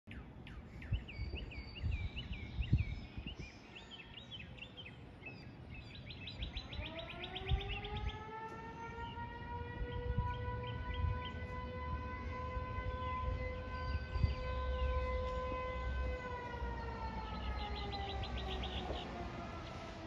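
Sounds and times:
birds chirping and trilling: 0:00.1 - 0:20.0
civil defense siren winding up: 0:06.7 - 0:20.0.

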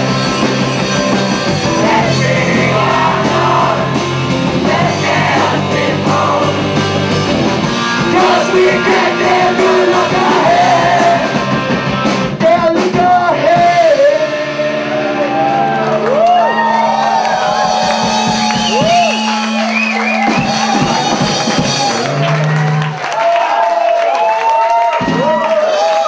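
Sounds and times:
choir and band performing: 0:00.0 - 0:22.3
voices whooping: 0:14.9 - 0:26.0.

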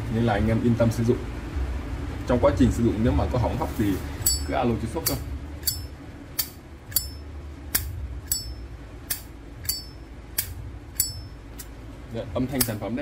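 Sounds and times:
bright metallic ring: 0:04.2 - 0:11.7.

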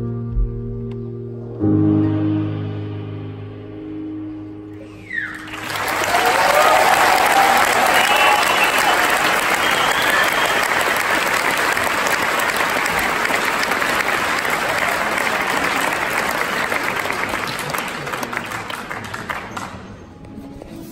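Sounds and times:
audience applauding: 0:05.1 - 0:20.1.

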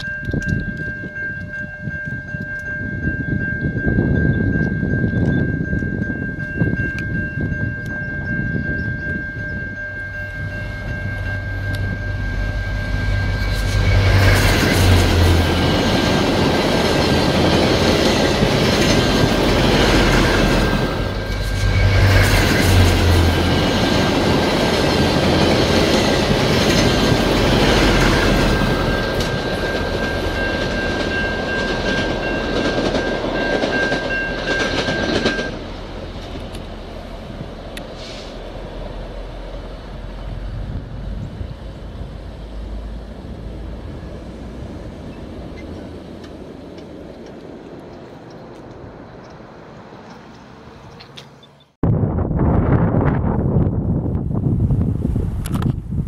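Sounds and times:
crossing signal bell ringing: 0:00.0 - 0:36.3
locomotive engine and wheels: 0:00.0 - 0:51.8, 0:53.3 - 0:56.0
train horn: 0:10.4 - 0:15.7.

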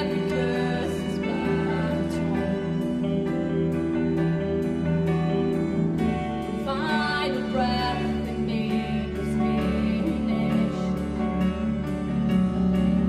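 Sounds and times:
women singing slow melody: 0:00.0 - 0:03.8, 0:06.0 - 0:11.7
sustained backing instruments: 0:00.0 - 0:13.0
violin: 0:00.0 - 0:13.0.

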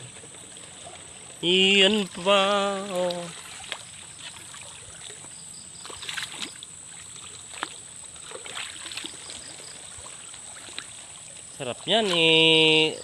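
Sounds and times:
wading through creek water: 0:00.0 - 0:13.0.

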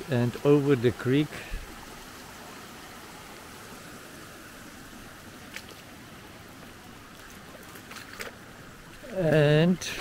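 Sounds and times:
creek flowing over weir: 0:00.0 - 0:10.0.

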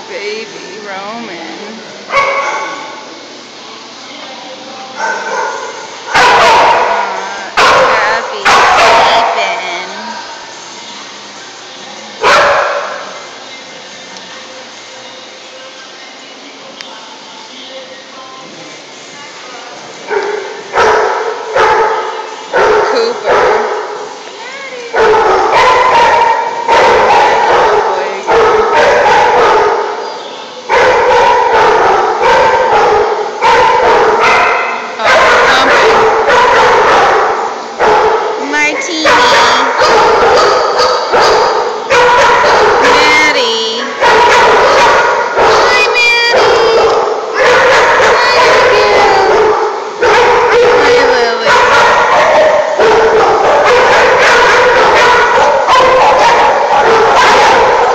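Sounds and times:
dogs barking: 0:02.1 - 0:03.0, 0:05.0 - 0:10.0, 0:12.2 - 0:13.2, 0:20.1 - 0:24.2, 0:24.9 - 0:57.9.

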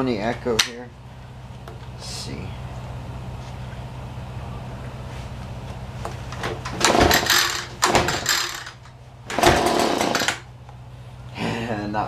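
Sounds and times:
steady low hum: 0:00.0 - 0:12.0
leaf blower pull-start cranking: 0:06.7 - 0:10.4.

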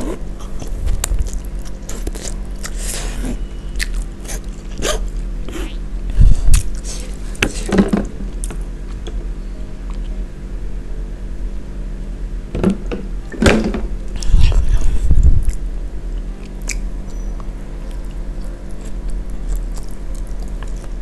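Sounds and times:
heavy low thumps: 0:12.7 - 0:16.1.

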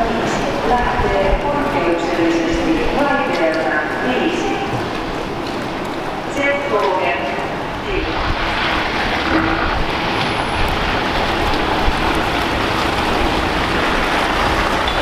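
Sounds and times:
city traffic rumble: 0:00.0 - 0:15.0
truck diesel engine passing: 0:08.0 - 0:15.0.

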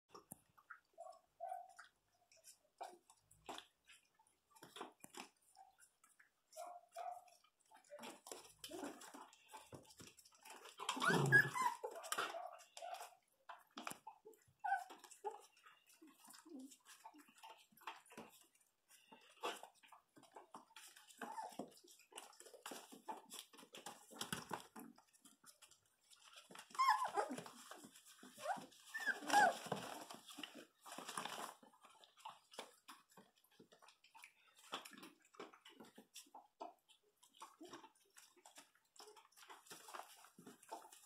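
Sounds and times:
puppies whimpering and yelping: 0:10.4 - 0:13.2, 0:14.0 - 0:18.0, 0:20.8 - 0:23.1, 0:25.6 - 0:31.5.

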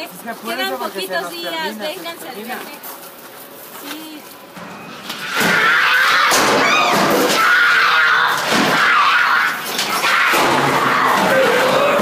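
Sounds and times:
bangs and slams: 0:05.1 - 0:12.0
loud high shrieks: 0:05.2 - 0:12.0.

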